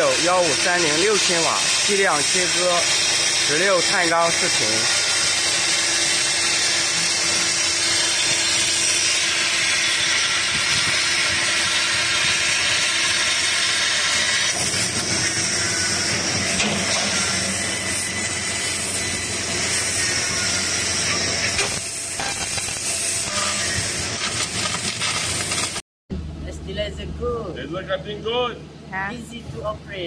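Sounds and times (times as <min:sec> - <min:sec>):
laser cutter gas jet hissing: 0:00.0 - 0:25.8
faint machine hum: 0:26.1 - 0:30.0.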